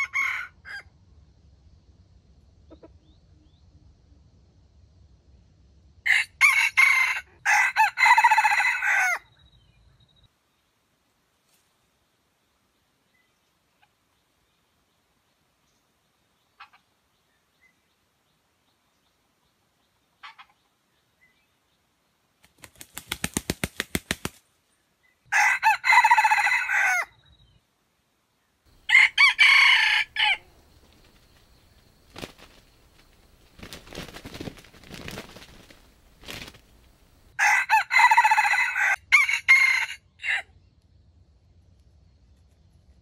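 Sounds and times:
rooster crowing: 0.0 - 0.9, 6.1 - 9.3, 25.3 - 27.2, 28.7 - 30.6, 37.4 - 40.5
wings flapping: 22.4 - 24.5, 30.6 - 37.3
faint rustling: 30.5 - 37.3.

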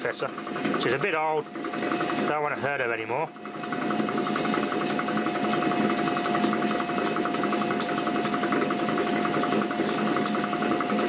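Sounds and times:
compressor rattling: 0.0 - 11.0
compressor whine: 0.0 - 11.0.

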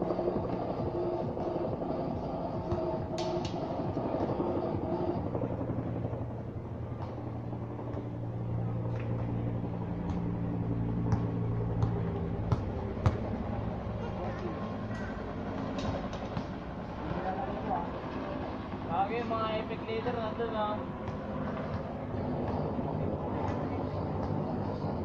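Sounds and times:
steady low hum: 0.0 - 25.0
basketball bouncing on concrete: 11.0 - 13.3, 21.0 - 22.7.

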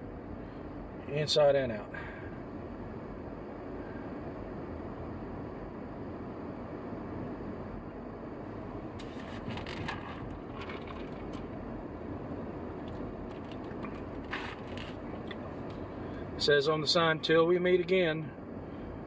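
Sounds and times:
vehicle road and engine noise: 0.0 - 19.0.

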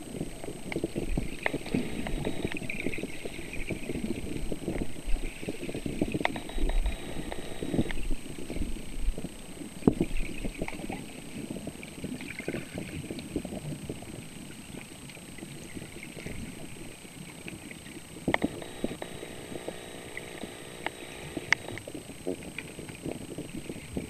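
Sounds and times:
underwater rumble of moving water: 0.0 - 7.0
faint hum: 0.0 - 11.8, 17.8 - 24.0.

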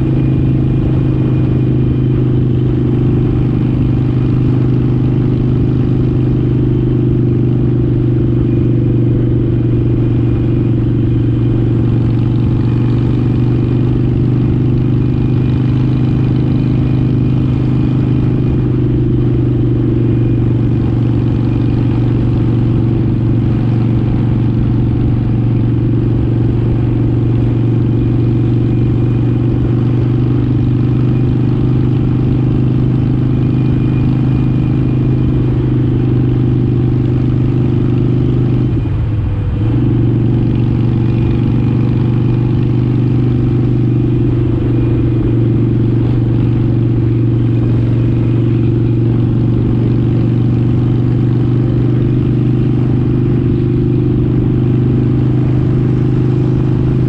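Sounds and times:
motorcycle engine cruising: 0.0 - 57.0
wind and road rush: 0.0 - 57.0.

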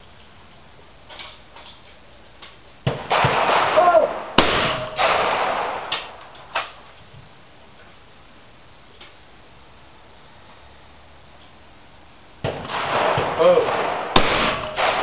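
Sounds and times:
shotgun shots: 2.9 - 6.2, 12.4 - 15.0.

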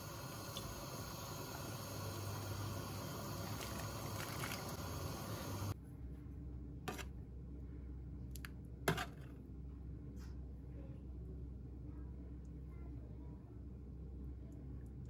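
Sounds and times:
soup simmering hiss: 0.0 - 5.8.

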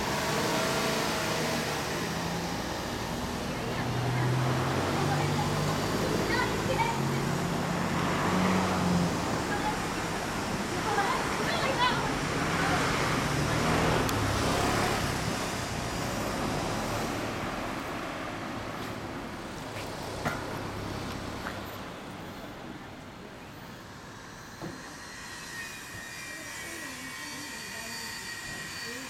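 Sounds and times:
vehicle passing: 0.0 - 22.4.

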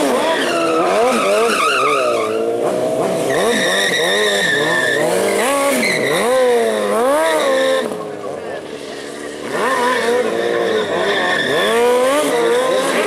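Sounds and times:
tyre squealing: 0.0 - 8.0, 9.5 - 13.0
motorcycle engine revving: 0.0 - 13.0.

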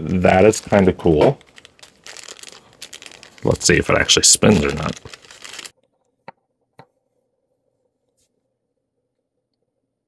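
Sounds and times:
steady electrical hum: 0.0 - 5.7.

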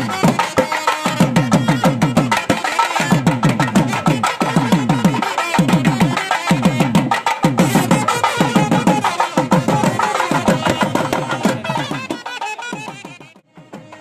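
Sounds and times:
hand drums beaten fast: 0.0 - 14.0.

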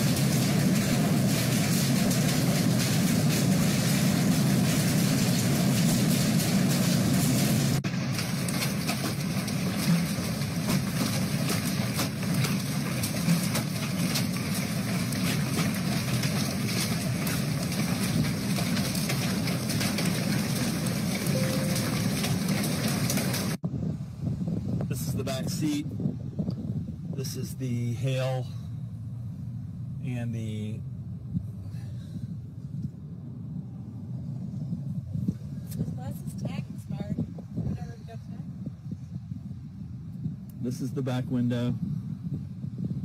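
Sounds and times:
hailstones pelting windows: 0.0 - 23.6.

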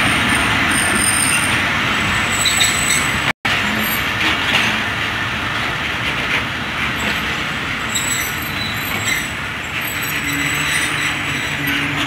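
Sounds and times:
train coaches rumbling past: 0.0 - 12.0
high wheel squeals: 2.2 - 4.0, 7.8 - 12.0.

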